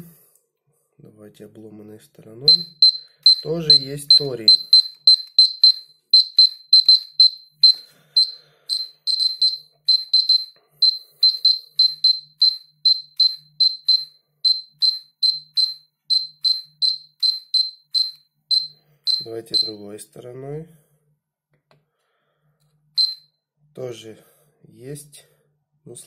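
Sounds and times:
dosimeter high-pitched chirps: 0:02.4 - 0:20.0, 0:23.0 - 0:23.3.

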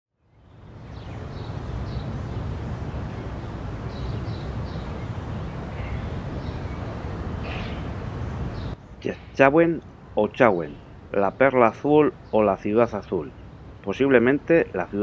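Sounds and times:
bird chirps: 0:00.3 - 0:09.5.

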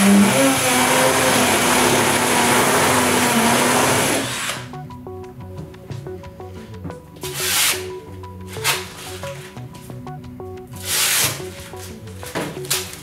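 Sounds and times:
power drill grinding into masonry: 0:00.0 - 0:04.7.

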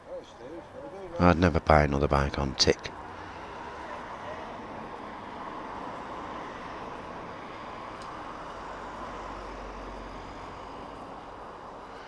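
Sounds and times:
cars driving past: 0:00.1 - 0:12.0
low rumble of passing car: 0:02.8 - 0:12.0.

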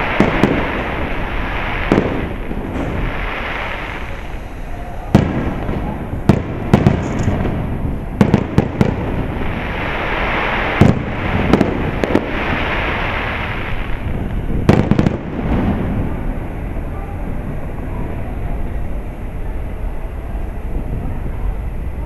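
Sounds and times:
firework shells booming: 0:00.0 - 0:16.4
continuous noise: 0:00.0 - 0:22.0.

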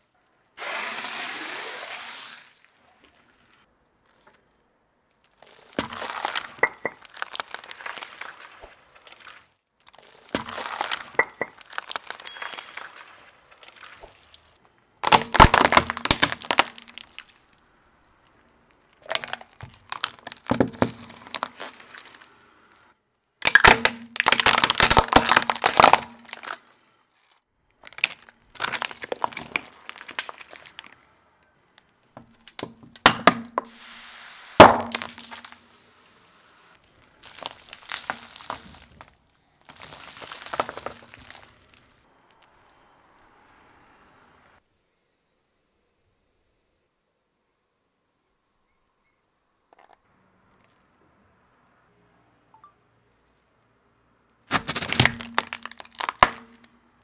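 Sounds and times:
tyre crushing plastic objects: 0:05.2 - 0:14.4, 0:15.0 - 0:17.6, 0:18.9 - 0:22.3, 0:23.4 - 0:26.8, 0:27.7 - 0:31.0, 0:32.1 - 0:33.8, 0:34.6 - 0:35.7, 0:37.0 - 0:41.9, 0:54.4 - 0:56.8.

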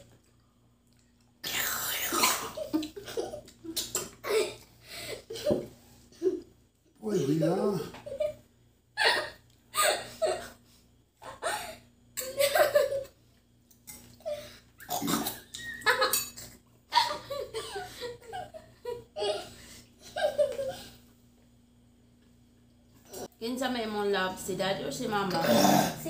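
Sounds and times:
girl laughing: 0:02.6 - 0:05.6, 0:09.0 - 0:10.6, 0:11.2 - 0:13.1, 0:15.5 - 0:20.9.

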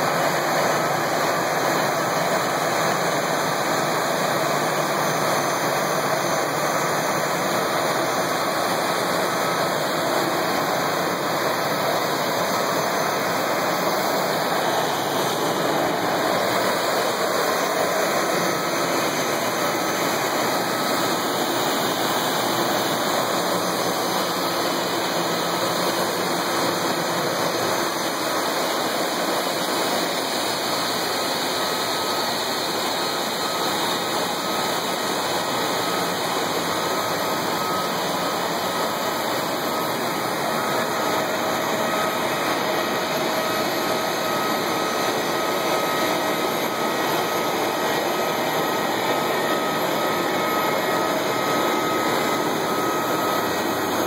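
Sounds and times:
jet engines idling: 0:00.0 - 0:54.0.

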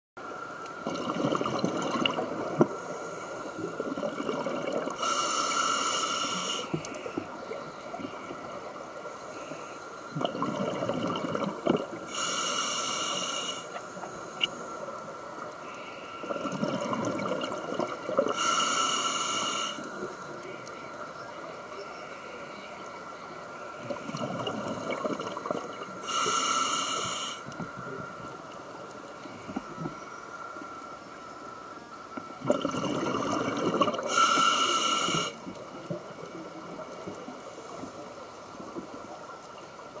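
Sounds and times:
underwater water noise: 0:00.2 - 0:40.0
exhaled bubbles gurgling underwater: 0:00.7 - 0:05.7, 0:10.1 - 0:12.9, 0:16.2 - 0:18.7, 0:23.8 - 0:26.4, 0:32.2 - 0:39.2
regulator inhalation hiss: 0:05.0 - 0:07.2, 0:12.1 - 0:14.9, 0:18.3 - 0:20.1, 0:26.0 - 0:27.5, 0:34.0 - 0:35.4.

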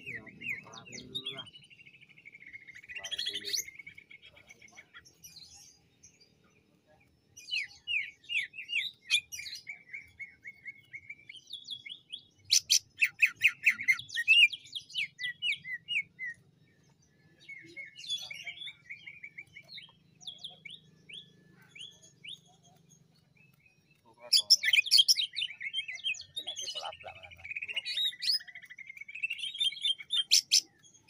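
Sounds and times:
bird singing whistled chattering notes: 0:17.6 - 0:31.0.

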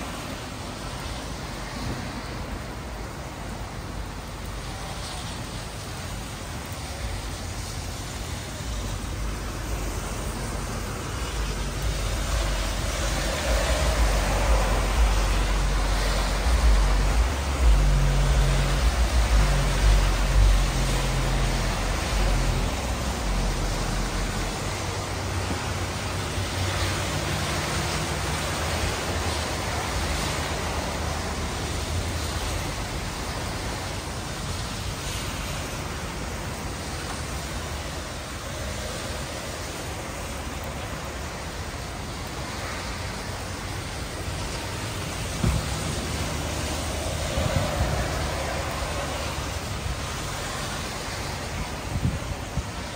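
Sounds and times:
car tyres hissing on wet road: 0:00.0 - 0:52.9
heavy rain on pavement: 0:00.0 - 0:52.9.

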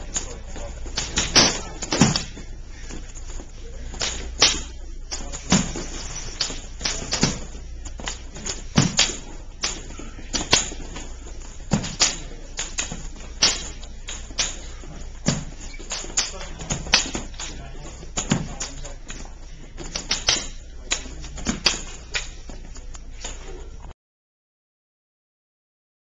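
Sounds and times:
sticks striking each other: 0:00.9 - 0:02.3, 0:03.9 - 0:11.0, 0:11.7 - 0:18.8, 0:19.8 - 0:22.4.

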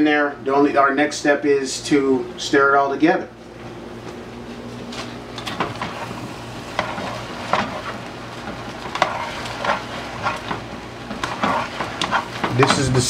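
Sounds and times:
frying hiss: 0:05.2 - 0:13.0
spoon scraping metal pot: 0:08.9 - 0:12.8.

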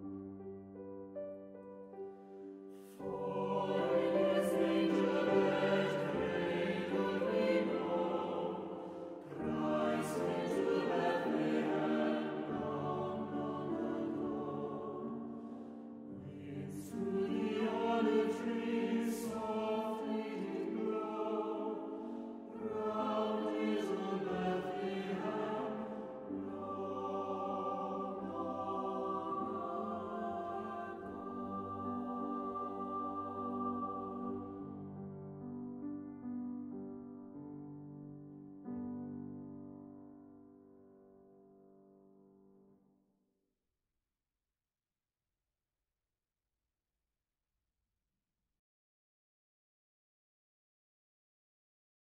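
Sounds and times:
mixed choir singing a carol: 0:02.8 - 0:35.1.

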